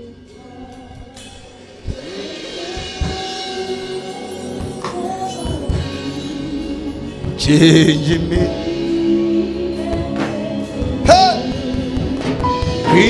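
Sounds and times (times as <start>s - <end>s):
held chords: 0.0s - 13.0s
people singing: 0.0s - 13.0s
drum kit hits: 0.8s - 6.3s, 10.0s - 13.0s.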